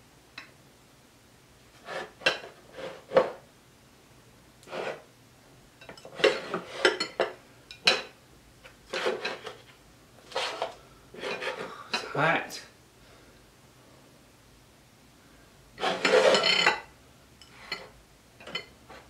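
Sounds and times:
plates and cutlery clinking: 1.8 - 3.4, 5.8 - 8.2, 8.9 - 9.7, 10.3 - 12.1, 15.8 - 19.0.

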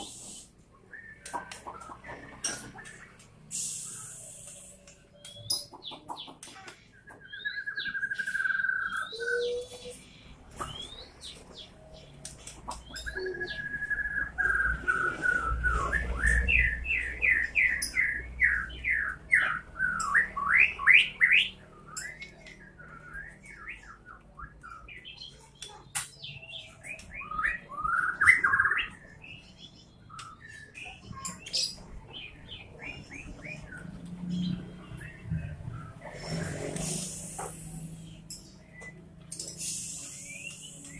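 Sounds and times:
songbird singing: 0.0 - 40.9.

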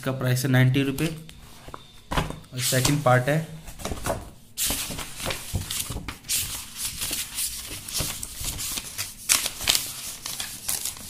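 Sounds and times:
paper pages rustling and flipping: 3.7 - 11.0.

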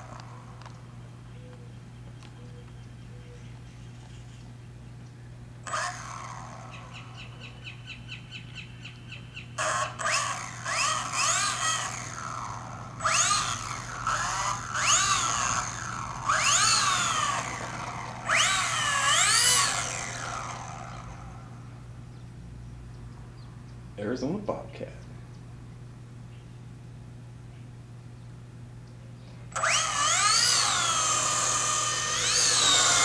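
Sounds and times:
model airplane electric motor whining: 0.0 - 0.9, 5.6 - 7.6, 9.6 - 21.8, 29.5 - 33.0.

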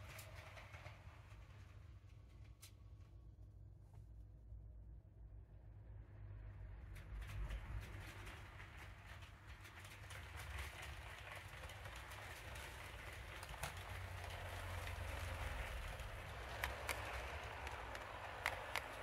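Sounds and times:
model train wheels clicking: 0.0 - 2.8, 6.8 - 19.0.

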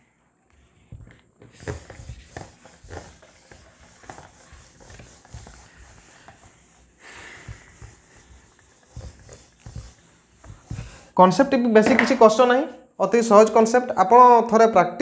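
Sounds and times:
eraser rubbing on whiteboard: 0.8 - 11.2.

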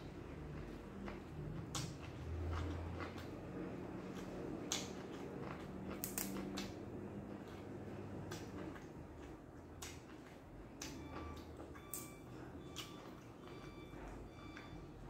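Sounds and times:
low steady hum: 0.0 - 15.0
chewing: 0.1 - 14.8
vegetables rustling and snapping: 1.6 - 11.0.

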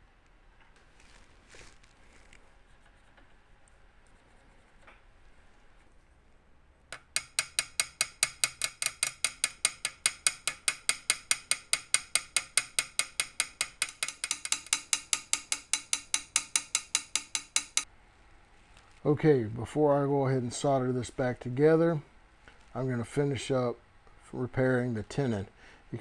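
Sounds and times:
hammer tapping on metal tube: 6.9 - 17.9.

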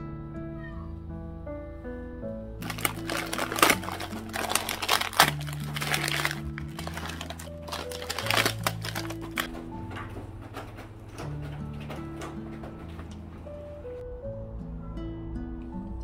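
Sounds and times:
background music: 0.0 - 16.0
plastic packaging crinkling: 2.6 - 9.5.

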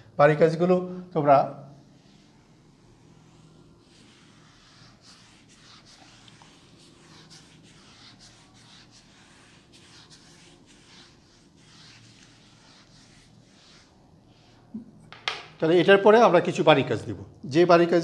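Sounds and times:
whiteboard rubbing strokes: 1.8 - 14.8.

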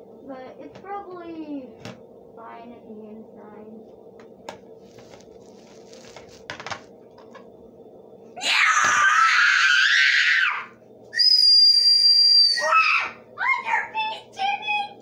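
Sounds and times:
child screaming: 8.4 - 15.0.

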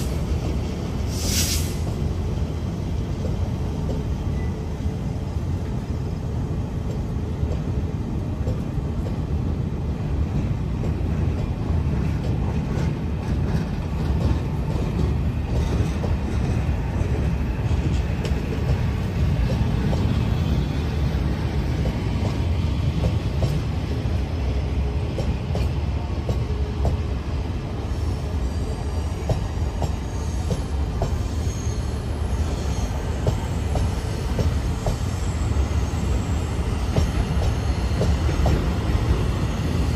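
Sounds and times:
train rumbling past: 0.0 - 39.9
high wheel squeals: 30.0 - 36.8.

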